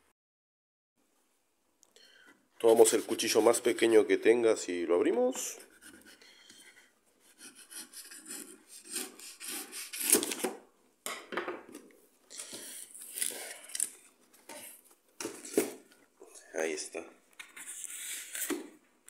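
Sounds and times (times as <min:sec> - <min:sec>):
knife cutting cardboard: 0:07.3 - 0:10.6.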